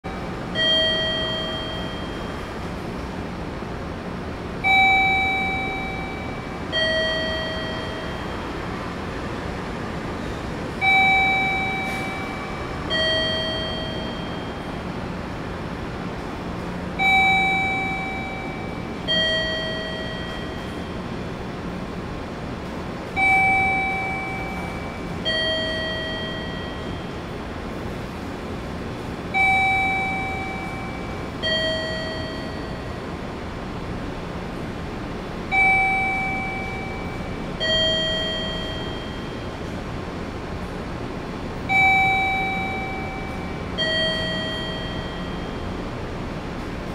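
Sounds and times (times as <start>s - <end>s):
steady background hum: 0.0s - 46.9s
electronic two-tone chime: 0.6s - 2.5s, 4.7s - 8.5s, 10.8s - 14.8s, 17.0s - 21.0s, 23.2s - 27.2s, 29.4s - 33.0s, 35.5s - 39.6s, 41.7s - 45.8s.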